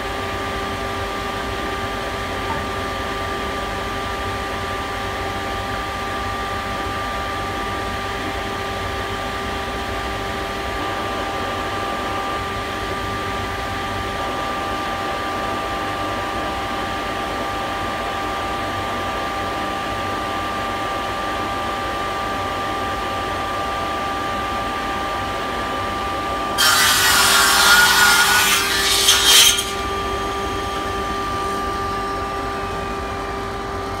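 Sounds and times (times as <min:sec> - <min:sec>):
table saw running: 0:26.5 - 0:34.0
saw blade cutting plywood: 0:26.6 - 0:31.7.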